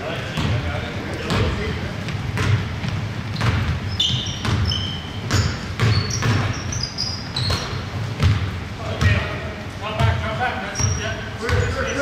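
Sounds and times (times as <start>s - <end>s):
sneaker squeaks: 0.0s - 9.3s, 10.0s - 12.0s
basketball dribbling on wooden floor: 1.3s - 6.8s, 7.4s - 9.3s.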